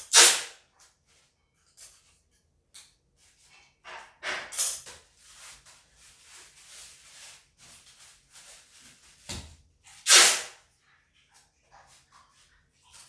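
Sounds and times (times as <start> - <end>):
packing tape ripping: 0.0 - 0.6, 10.0 - 10.6.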